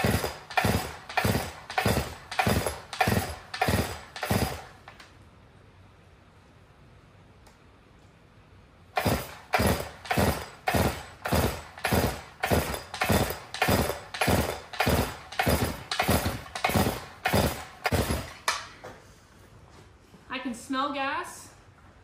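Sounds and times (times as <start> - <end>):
chainsaw pull-starting: 0.0 - 5.1, 9.0 - 18.7.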